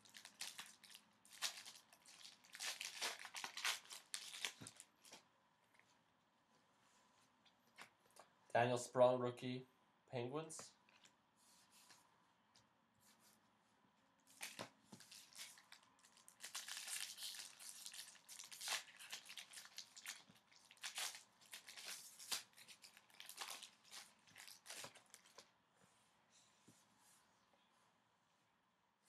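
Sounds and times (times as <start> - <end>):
foil wrapper crinkling and tearing: 0.0 - 5.2, 14.3 - 25.4.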